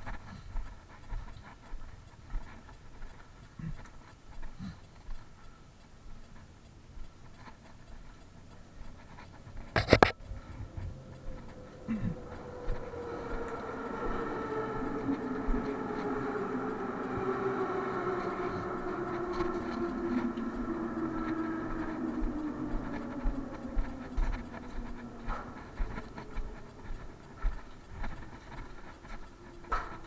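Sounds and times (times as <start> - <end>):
train motor whine: 9.7 - 30.0.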